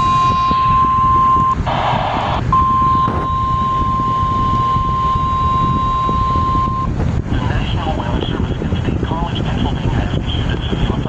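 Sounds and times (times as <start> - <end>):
high-pitched alarm tone: 0.0 - 6.9
low rumble of radio noise: 0.0 - 11.0.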